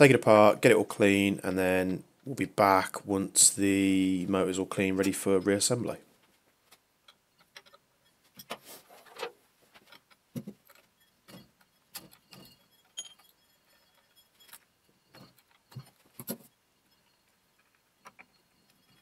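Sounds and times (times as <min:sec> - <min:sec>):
light metal clinks and knocks: 0:04.8 - 0:19.0.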